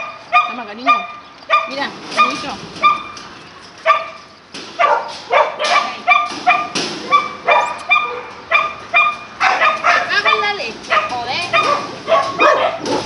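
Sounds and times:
small dog yapping: 4.8s - 13.0s.

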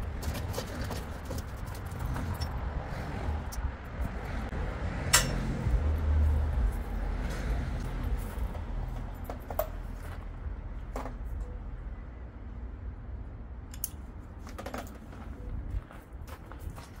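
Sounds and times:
steady low rumble: 0.0s - 9.3s
metallic clink: 5.1s - 5.4s.

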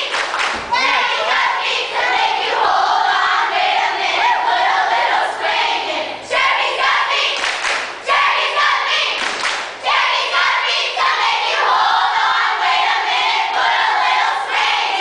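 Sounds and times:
clapping: 0.0s - 0.7s, 7.4s - 7.9s, 9.2s - 9.7s
girls chanting a cheer: 0.0s - 15.0s.

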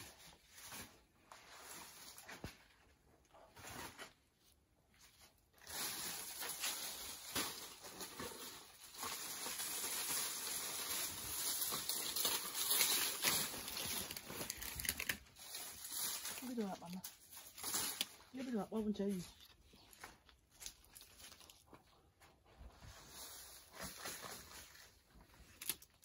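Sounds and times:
dry leaves rustling and crackling: 5.6s - 21.8s.

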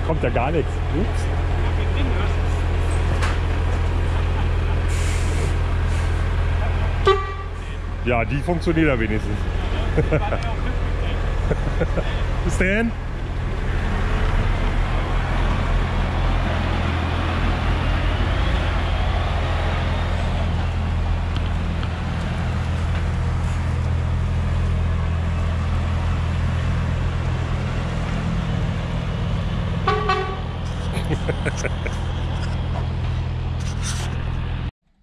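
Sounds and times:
truck diesel engine idling: 0.0s - 34.6s
short horn toot: 7.0s - 7.6s, 29.9s - 30.5s.

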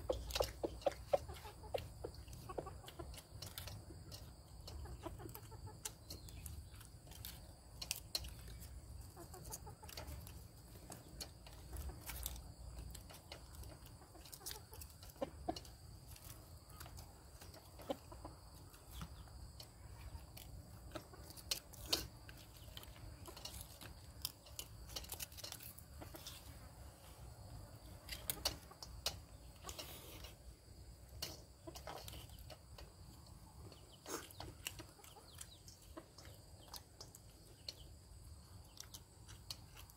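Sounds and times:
chickens clucking: 0.0s - 39.9s.

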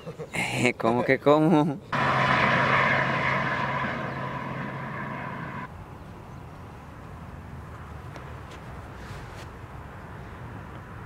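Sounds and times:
motor engine droning: 2.0s - 5.7s.

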